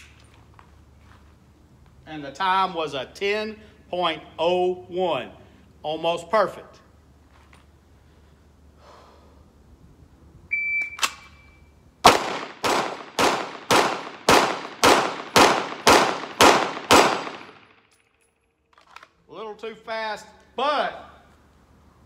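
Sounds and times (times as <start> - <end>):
shot timer beep: 10.5 - 11.7
pistol shots ringing: 12.0 - 18.0.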